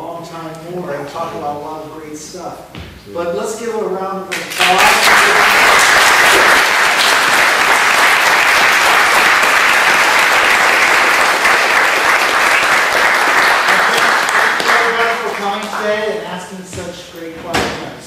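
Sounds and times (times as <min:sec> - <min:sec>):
audience applauding: 0:04.4 - 0:15.9.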